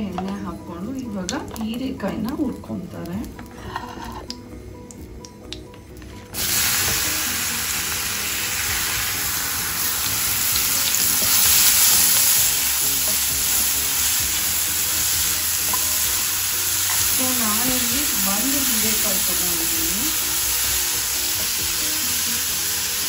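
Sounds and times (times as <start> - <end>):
vegetables sizzling in hot oil: 6.4 - 23.0.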